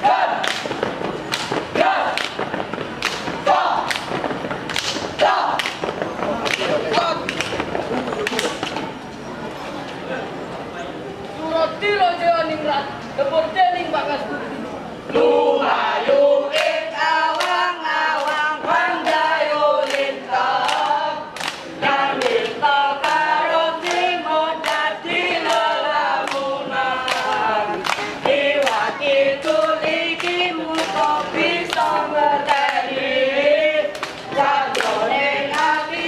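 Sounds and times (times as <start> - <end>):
claps or stomps keeping time: 0.3 - 8.8, 16.5 - 32.9
young voices singing in unison: 15.0 - 36.0.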